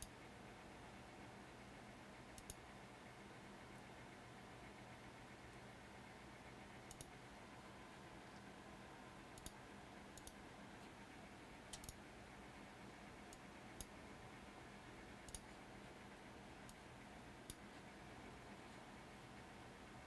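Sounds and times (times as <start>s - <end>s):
steady low hum: 0.0s - 20.0s
computer mouse clicks: 2.3s - 2.7s, 6.8s - 7.2s, 9.3s - 10.4s, 11.7s - 12.0s, 13.3s - 14.0s, 15.2s - 15.6s, 16.6s - 16.8s, 17.4s - 17.8s.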